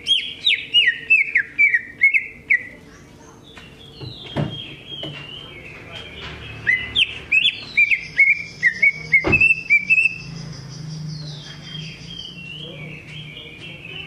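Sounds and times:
bird whistling song: 0.0s - 2.8s, 3.5s - 14.0s
high bird twittering: 0.0s - 14.0s.

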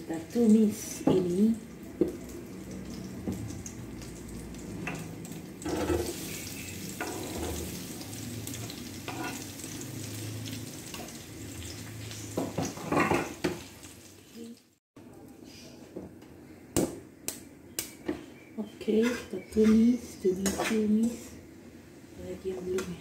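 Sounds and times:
onions sizzling in a wok: 0.0s - 14.8s.

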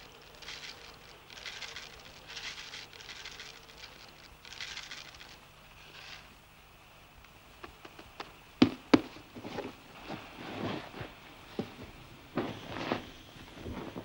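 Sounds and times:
sleeping bag rustling: 9.3s - 14.0s.

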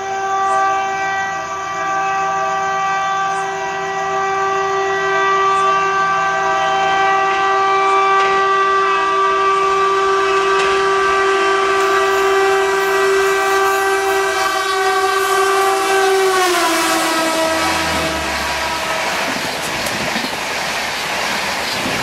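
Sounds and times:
locomotive air horn: 0.0s - 20.4s
rush of passing train coaches: 0.0s - 22.0s.

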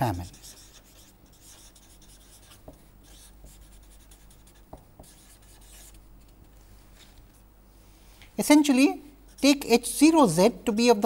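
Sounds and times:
marker scratching on paper: 0.0s - 6.6s, 9.3s - 9.8s.

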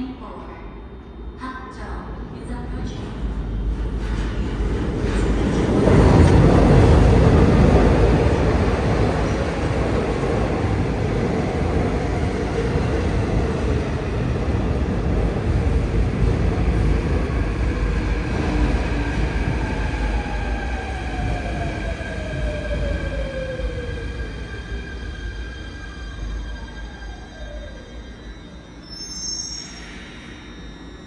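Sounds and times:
train wheels rumbling: 2.8s - 27.5s.

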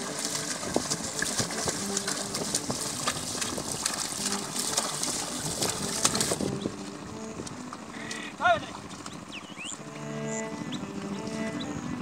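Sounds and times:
hooves splashing through mud: 0.0s - 12.0s.

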